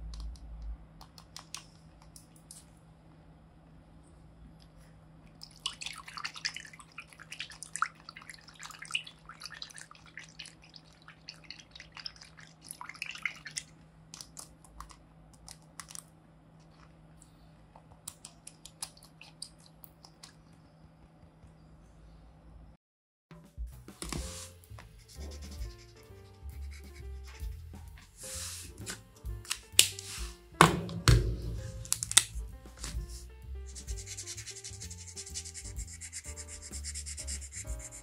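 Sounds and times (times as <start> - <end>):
water dripping: 5.4 - 14.4
water sloshing and bubbling: 5.4 - 14.4, 18.5 - 20.5.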